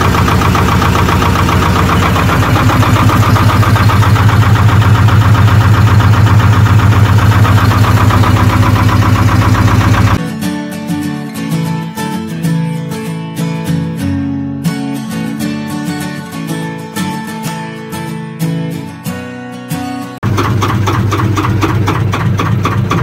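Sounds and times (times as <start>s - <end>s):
diesel boat engine running: 0.0s - 10.2s, 20.2s - 23.0s
acoustic guitar music: 0.0s - 23.0s.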